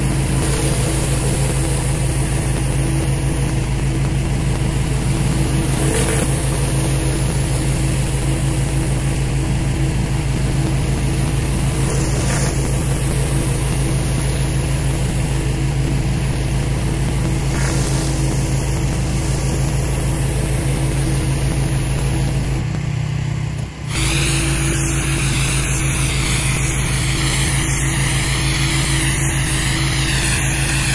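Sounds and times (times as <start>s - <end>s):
pressure washer engine running: 0.0s - 30.9s
water spray hissing on concrete: 10.7s - 15.5s, 17.1s - 22.6s, 23.9s - 30.9s.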